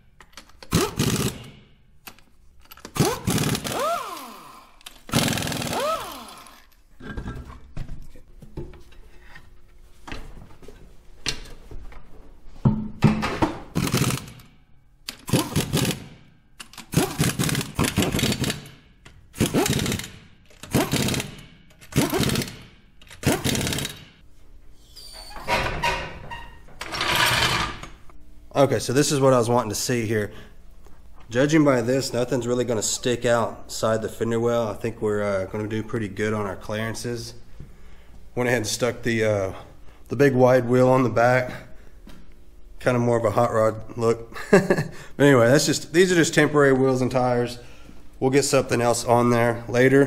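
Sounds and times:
impact wrench bursts: 0:00.6 - 0:01.7, 0:02.8 - 0:06.8, 0:13.7 - 0:14.5, 0:15.1 - 0:24.2.

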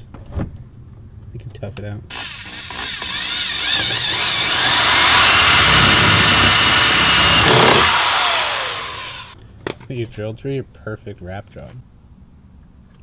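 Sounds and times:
cordless drill whine: 0:02.1 - 0:09.4.

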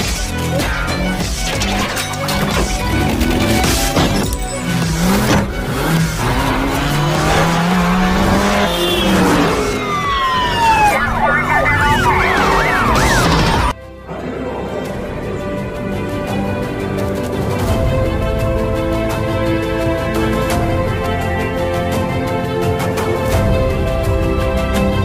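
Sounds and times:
music: 0:00.0 - 0:25.0
car engine running: 0:02.3 - 0:13.7
siren-like wail: 0:07.2 - 0:13.8
falling whine: 0:08.2 - 0:13.8.

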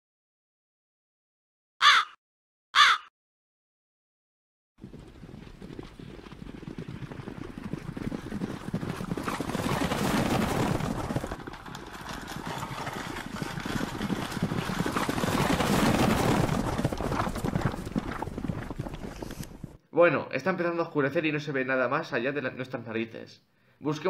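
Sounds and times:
wagon rattling clatter: 0:04.8 - 0:19.8.

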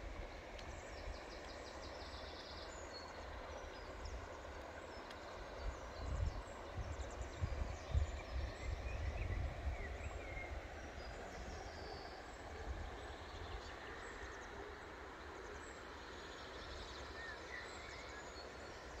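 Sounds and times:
wind buffeting microphone: 0:05.6 - 0:10.8.

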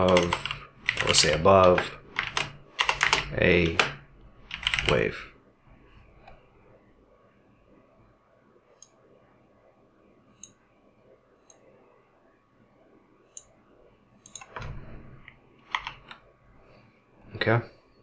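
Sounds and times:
computer mouse and keyboard clicks: 0:14.2 - 0:14.6, 0:15.2 - 0:16.2.

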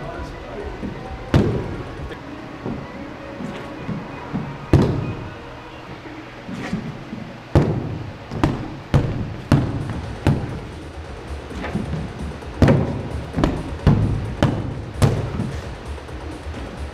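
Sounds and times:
shoes stamping on concrete floor: 0:00.0 - 0:05.2, 0:06.5 - 0:16.9.

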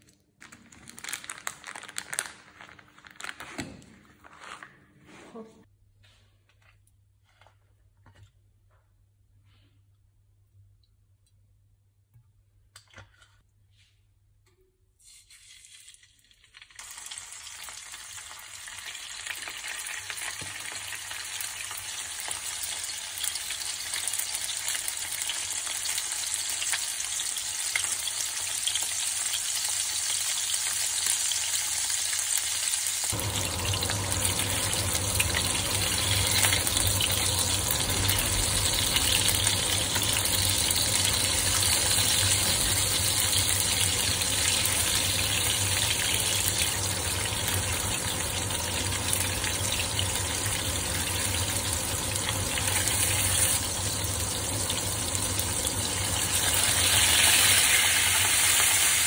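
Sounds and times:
fish sizzling in a pan: 0:15.6 - 0:59.0.

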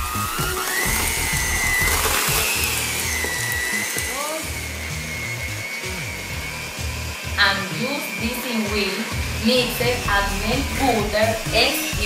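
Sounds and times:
background music with steady beat: 0:00.0 - 0:12.0
electric hand mixer whining: 0:00.0 - 0:12.0.

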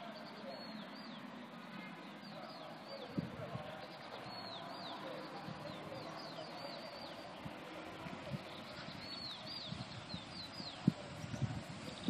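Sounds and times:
small birds chirping: 0:00.0 - 0:12.0
outdoor hiss: 0:06.9 - 0:12.0.

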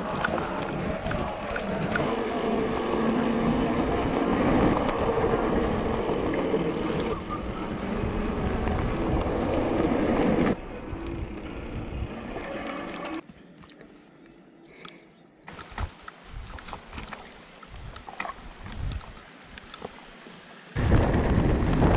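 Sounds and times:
wind noise: 0:00.0 - 0:12.5, 0:15.6 - 0:19.8, 0:20.8 - 0:21.9
bike tyres on rough track: 0:00.0 - 0:13.3.

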